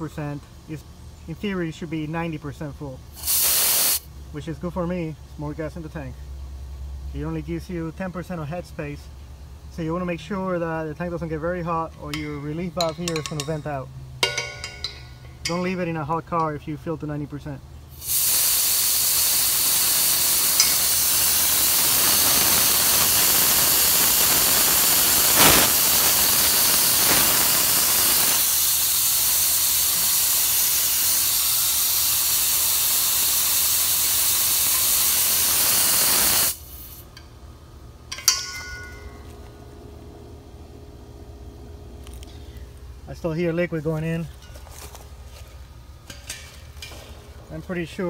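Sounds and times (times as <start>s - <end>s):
gas hissing from tank vent: 3.1s - 4.1s, 17.9s - 37.2s
metallic clank: 12.0s - 16.5s, 38.1s - 39.7s, 46.0s - 47.6s.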